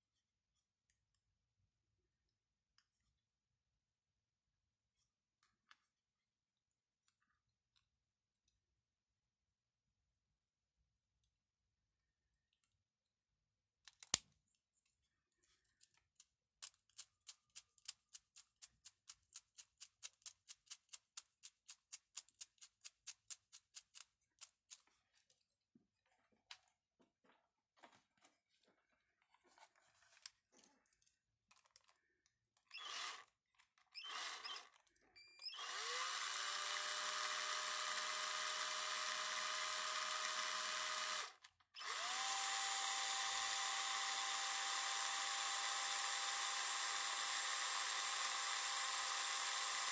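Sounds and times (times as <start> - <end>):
handheld drill whine: 32.6 - 49.9.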